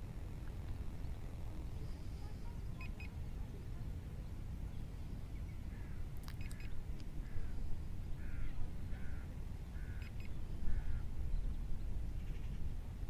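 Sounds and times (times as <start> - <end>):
low wind rumble: 0.0 - 13.0
bird harsh calls: 8.2 - 11.1.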